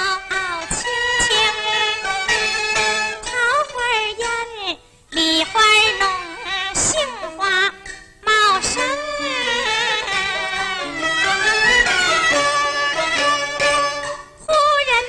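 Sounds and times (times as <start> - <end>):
woman singing opera: 0.0 - 2.6, 3.2 - 15.0
instrumental accompaniment: 0.0 - 15.0
sharp percussion strikes: 7.7 - 14.5.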